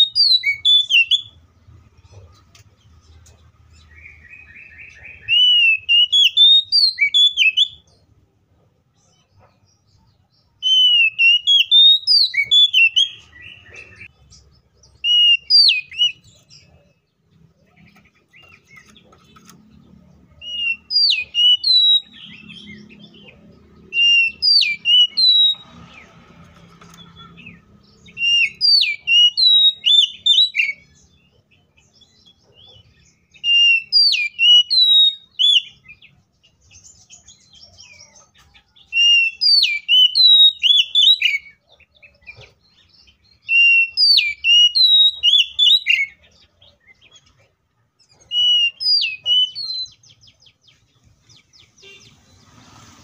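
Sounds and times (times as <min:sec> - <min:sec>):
bird singing whistled notes: 0:00.0 - 0:01.4, 0:03.8 - 0:07.9, 0:10.6 - 0:14.1, 0:14.9 - 0:16.8, 0:20.4 - 0:26.1, 0:27.0 - 0:38.2, 0:38.8 - 0:47.1, 0:48.2 - 0:52.5.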